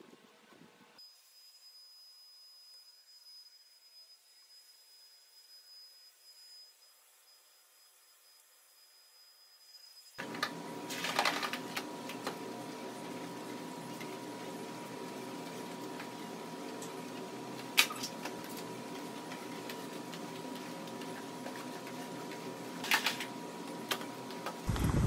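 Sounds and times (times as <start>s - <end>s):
scrub brush on wet tiled floor: 10.2s - 24.5s
steady hum: 10.2s - 25.0s.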